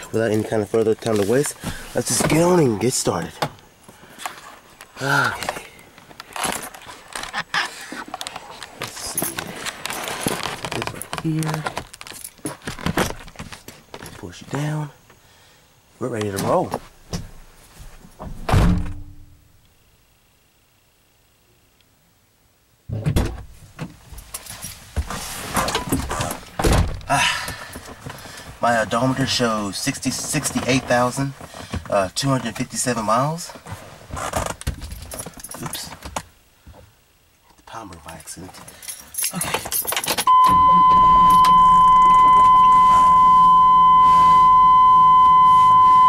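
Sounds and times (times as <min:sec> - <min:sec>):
car door opening and slamming: 0:18.2 - 0:19.1, 0:22.9 - 0:23.9, 0:25.7 - 0:27.1
keys jangling: 0:38.7 - 0:40.3
high electronic beep: 0:40.3 - 0:46.0.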